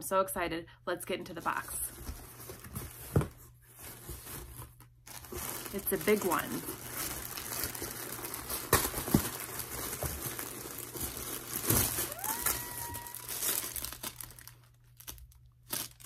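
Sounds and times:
paper packaging crinkling: 0:03.8 - 0:16.0.

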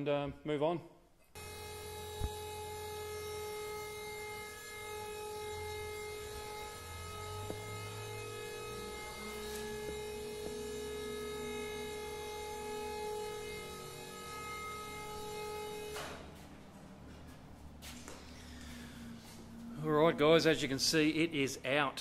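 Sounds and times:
hydraulic pump motor humming: 0:01.3 - 0:16.4.

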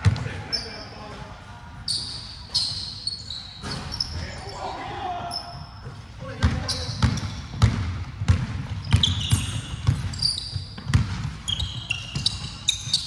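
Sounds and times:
sneakers squeaking on floor: 0:00.0 - 0:13.0
basketball bouncing on hardwood: 0:06.4 - 0:12.8.

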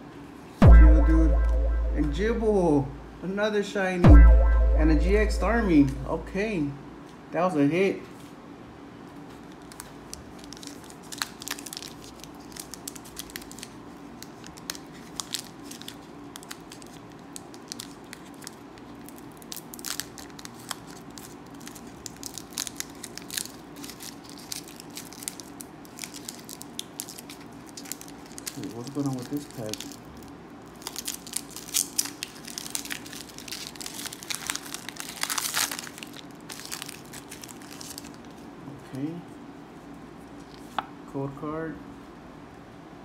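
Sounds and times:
foil wrapper crinkling and tearing: 0:09.4 - 0:38.4.

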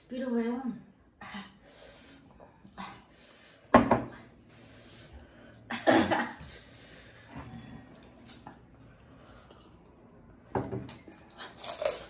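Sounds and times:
hissing breaths: 0:01.4 - 0:03.7, 0:04.3 - 0:05.7
crunching or slurping mouth sounds: 0:11.3 - 0:12.0.

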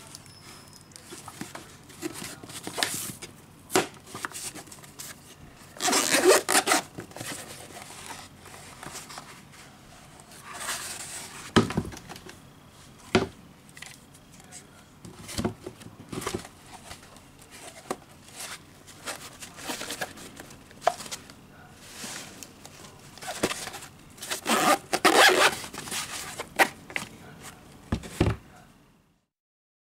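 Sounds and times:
zipper being pulled open: 0:05.8 - 0:06.9, 0:24.4 - 0:25.6
fabric case rubbing and scraping: 0:05.8 - 0:09.6, 0:23.2 - 0:26.6.

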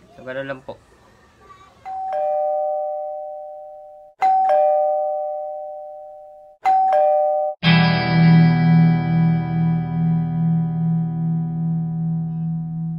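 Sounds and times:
two-note doorbell chime: 0:01.9 - 0:07.7
music: 0:07.6 - 0:12.9.

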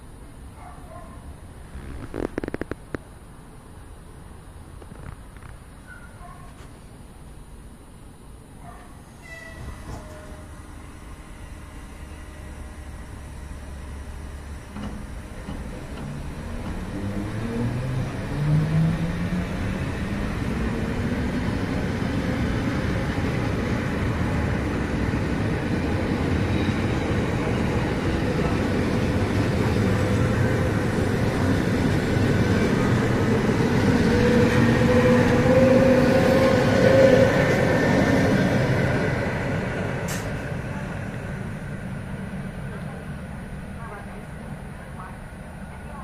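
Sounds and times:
train rolling noise: 0:09.1 - 0:46.0
electric train traction whine: 0:09.2 - 0:43.6.

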